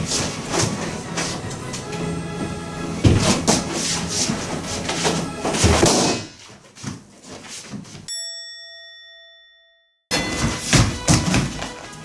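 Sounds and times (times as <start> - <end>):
background music: 0.0 - 6.3, 10.1 - 12.0
bell-like ding: 8.1 - 11.2.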